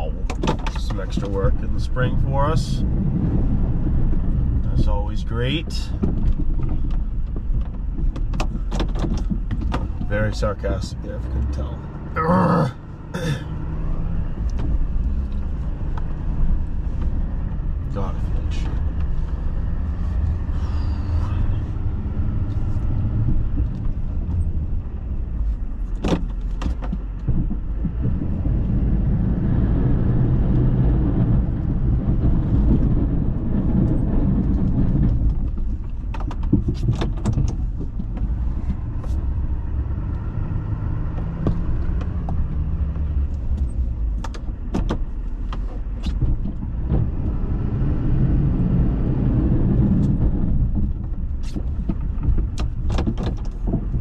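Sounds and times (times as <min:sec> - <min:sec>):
sharp clicks and knocks: 0:00.0 - 0:01.7, 0:05.9 - 0:10.5, 0:22.6 - 0:29.0, 0:31.3 - 0:39.4, 0:41.1 - 0:47.4, 0:49.8 - 0:54.0.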